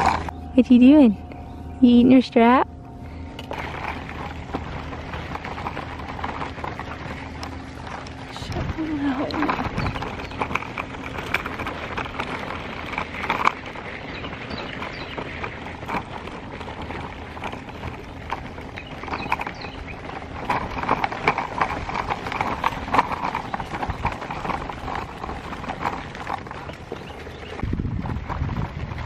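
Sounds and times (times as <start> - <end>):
footsteps on gravel: 0.0 - 29.0
stroller wheels on gravel: 0.0 - 29.0.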